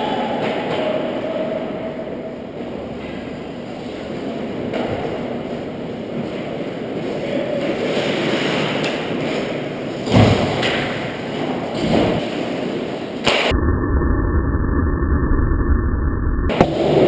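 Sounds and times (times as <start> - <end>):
skates scraping on ice: 6.2 - 10.0.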